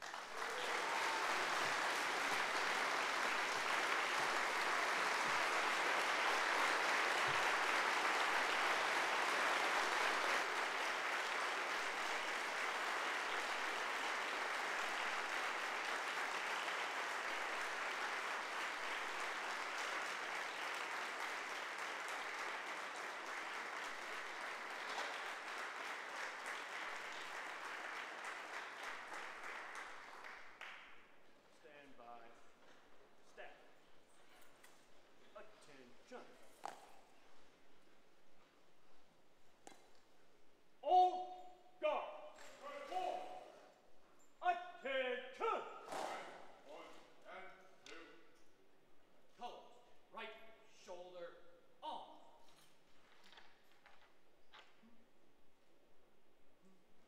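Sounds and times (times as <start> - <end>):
audience applause: 0.0 - 30.8.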